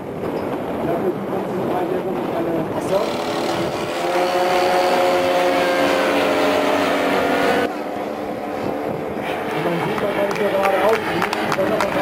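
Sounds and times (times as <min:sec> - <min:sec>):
model plane engines overhead: 0:02.7 - 0:12.0.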